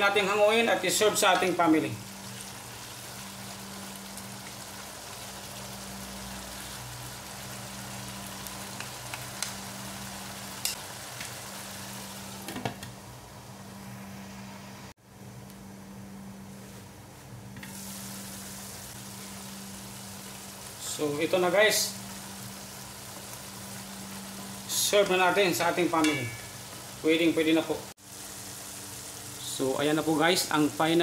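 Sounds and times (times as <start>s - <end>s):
stew simmering and sizzling: 0.0s - 31.0s.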